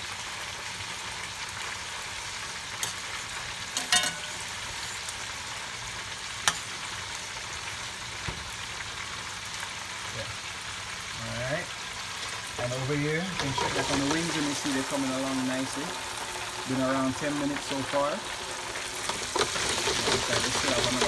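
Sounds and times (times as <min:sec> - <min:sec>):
frying sizzle: 0:00.0 - 0:21.0
spoon knocking metal pan: 0:03.8 - 0:04.5.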